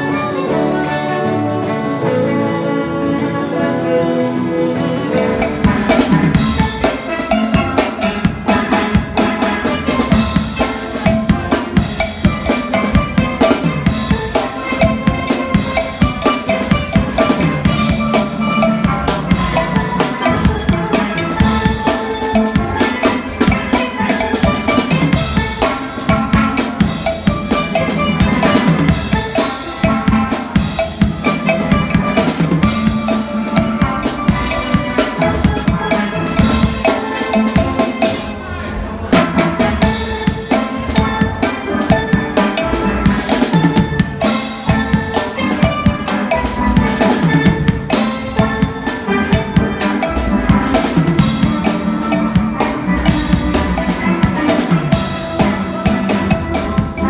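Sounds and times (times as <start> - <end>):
rock drum kit beat: 4.9 - 57.0
steel pans playing tune: 5.0 - 57.0.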